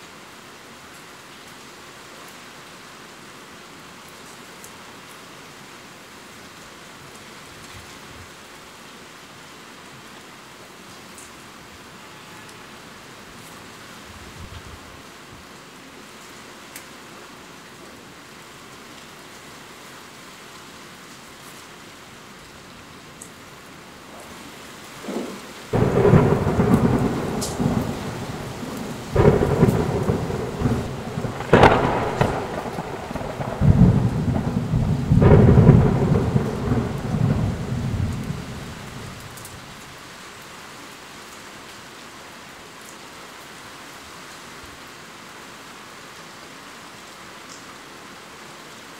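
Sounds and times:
steady rain: 0.0s - 48.9s
thunder cracking and rumbling: 24.0s - 39.5s.

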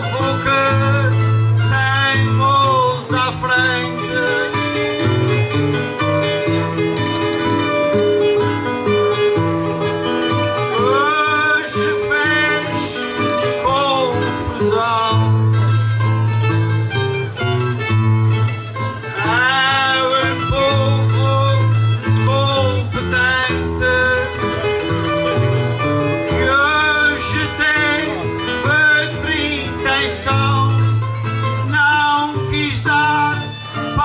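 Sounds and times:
man singing: 0.0s - 5.2s, 10.5s - 15.8s, 19.0s - 25.0s, 26.0s - 34.0s
acoustic guitar folk accompaniment: 0.0s - 34.0s.

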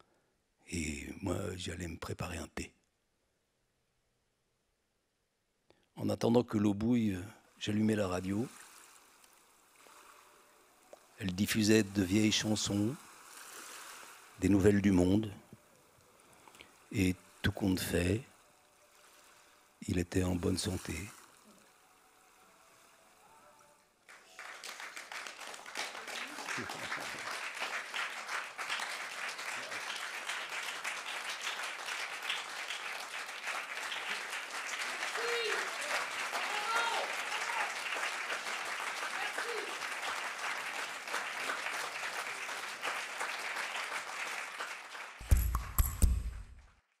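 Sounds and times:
audience applause: 22.8s - 45.9s.

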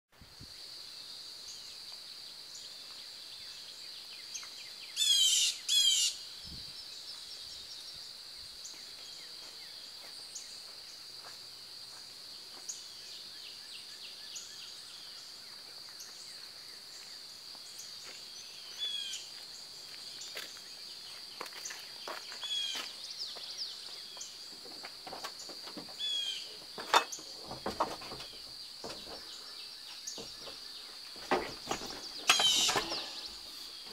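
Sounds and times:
high insect drone: 0.2s - 33.9s
bird chirps: 2.5s - 8.0s, 28.1s - 33.9s.

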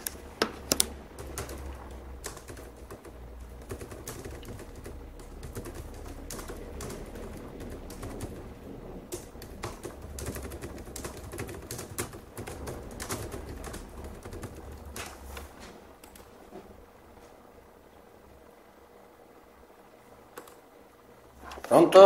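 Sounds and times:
keyboard typing: 0.0s - 16.3s, 20.3s - 20.6s
low steady hum: 0.0s - 22.0s.

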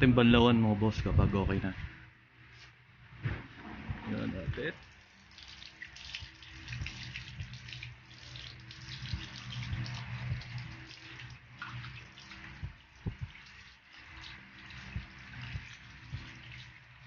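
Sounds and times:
hose water running over hands: 4.8s - 17.0s.

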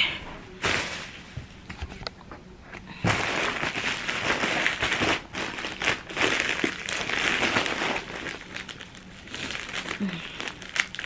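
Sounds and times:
plastic bag crinkling: 3.1s - 11.0s.

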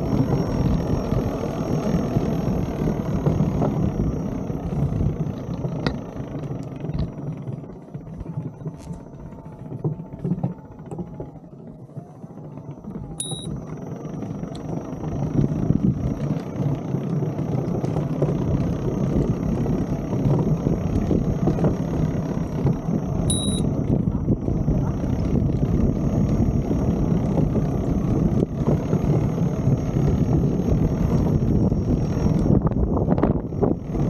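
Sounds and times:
short electronic beep: 13.2s - 13.6s, 23.3s - 23.7s
wind on microphone: 18.3s - 34.0s.

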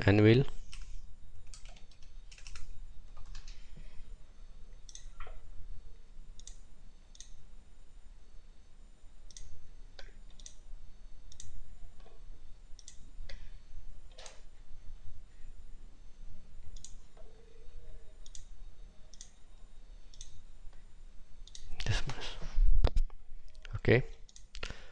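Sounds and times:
low steady hum: 0.0s - 24.9s
computer mouse clicks: 0.7s - 3.6s, 4.9s - 5.4s, 6.4s - 7.4s, 9.3s - 10.6s, 11.3s - 11.6s, 12.8s - 13.4s, 16.7s - 17.0s, 18.2s - 18.5s, 19.1s - 19.4s, 20.1s - 20.4s, 21.4s - 21.9s, 24.2s - 24.7s
keystrokes: 1.5s - 3.6s.

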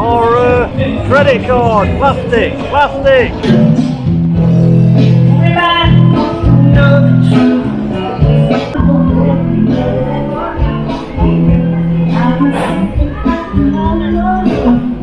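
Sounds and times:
pop-rock song over sound system: 2.4s - 15.0s.

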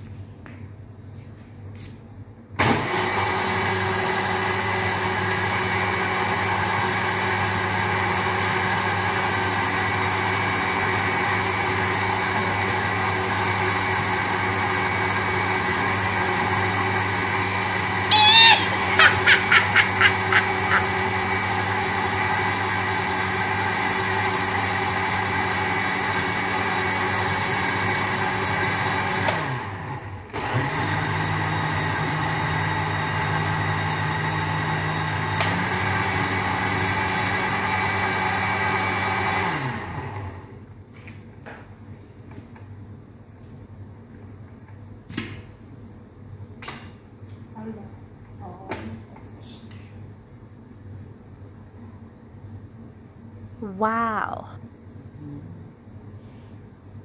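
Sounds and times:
blender motor running: 2.6s - 40.5s
loud high chirping pulses: 18.1s - 20.8s.

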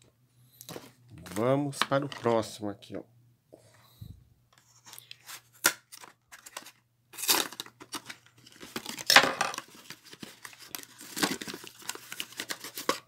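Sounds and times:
cardboard and paper tearing: 5.2s - 13.0s.

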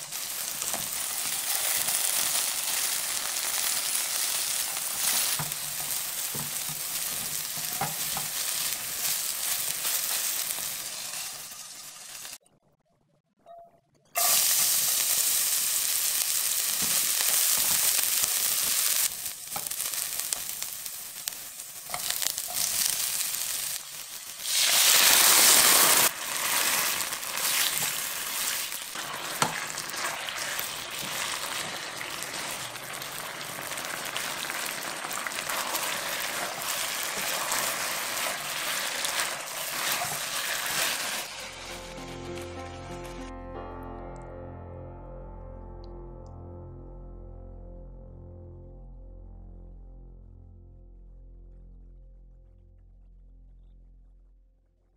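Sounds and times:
food sizzling in hot oil: 0.0s - 12.4s, 14.2s - 43.3s
spatula stirring and scraping: 4.7s - 10.4s, 21.2s - 42.1s.

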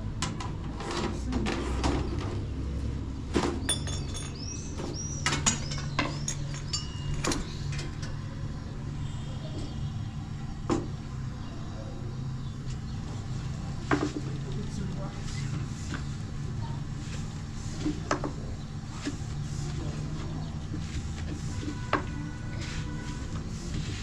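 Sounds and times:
low background hum: 0.0s - 24.0s.

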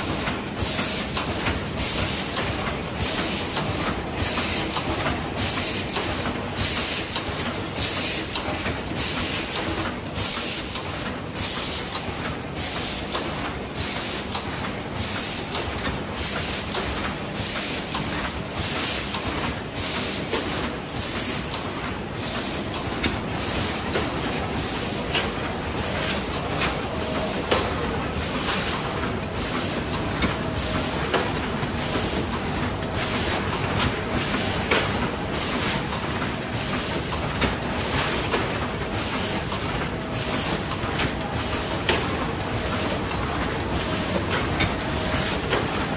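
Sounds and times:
machine clatter: 0.0s - 45.9s.

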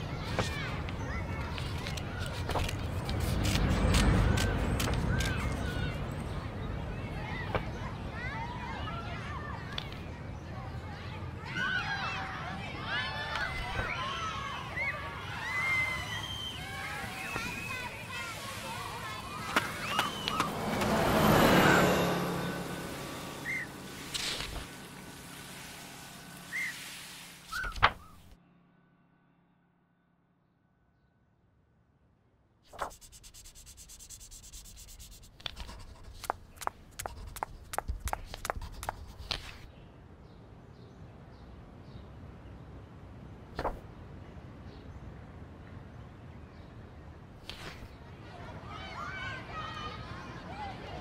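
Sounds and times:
traffic noise: 0.0s - 28.4s, 32.7s - 51.0s
faint falling high chirps: 26.4s - 26.8s, 27.4s - 28.2s.

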